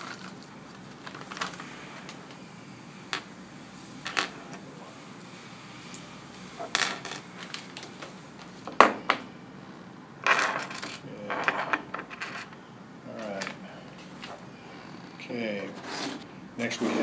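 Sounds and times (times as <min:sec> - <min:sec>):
plastic bags rustling: 0:00.0 - 0:02.1.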